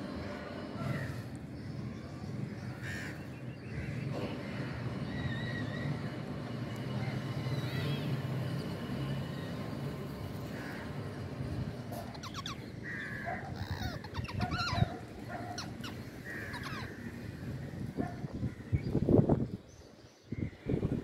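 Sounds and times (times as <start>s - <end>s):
low steady background rumble: 0.0s - 8.7s, 9.4s - 21.0s
harsh bird calls: 9.5s - 19.2s.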